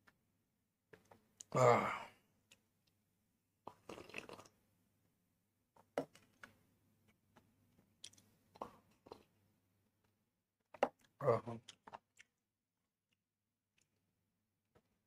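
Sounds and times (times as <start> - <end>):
person slurping: 3.7 - 4.5.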